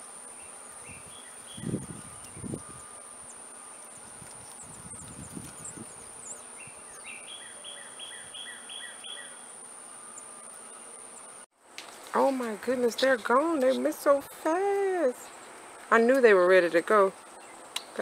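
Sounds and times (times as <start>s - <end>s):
high-pitched insect drone: 0.0s - 11.4s
bird whistling: 4.6s - 10.6s.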